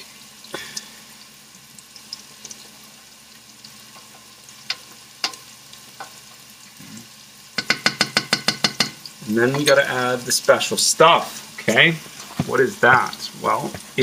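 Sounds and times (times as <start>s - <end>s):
food sizzling in pan: 0.0s - 14.0s
utensil clinking on pan: 7.6s - 9.9s.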